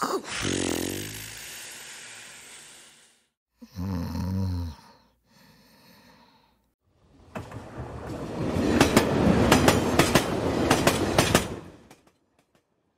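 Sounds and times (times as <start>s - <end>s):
low snore: 0.3s - 5.0s
breathy exhale: 4.8s - 6.7s.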